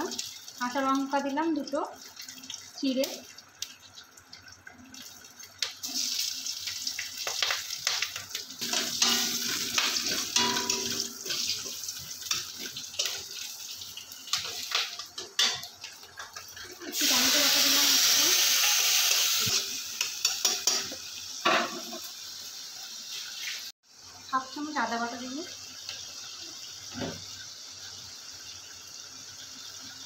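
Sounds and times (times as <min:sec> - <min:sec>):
seeds and chillies sizzling in oil: 0:00.0 - 0:01.9, 0:05.5 - 0:30.0
metal spatula scraping pan: 0:08.6 - 0:11.7.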